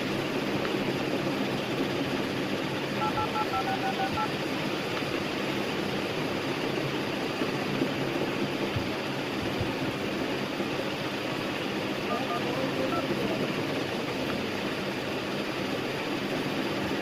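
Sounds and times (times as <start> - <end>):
steady background noise: 0.0 - 17.0
touch-tone keypad beeps: 3.0 - 4.3, 12.1 - 13.2.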